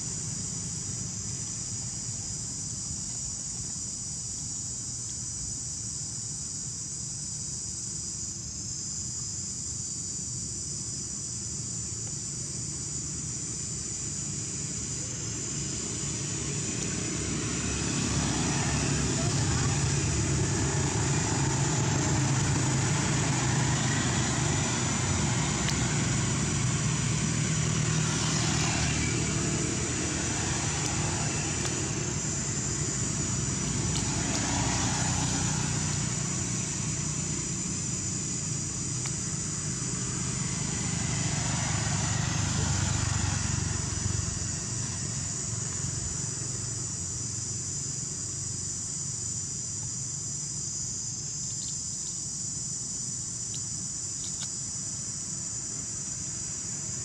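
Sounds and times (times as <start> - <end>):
high-pitched insect drone: 0.0 - 57.0
low engine hum: 11.8 - 51.6.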